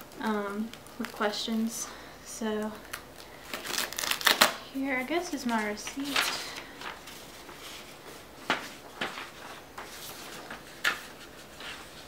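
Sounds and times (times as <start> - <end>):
papers rustling: 2.8 - 12.0.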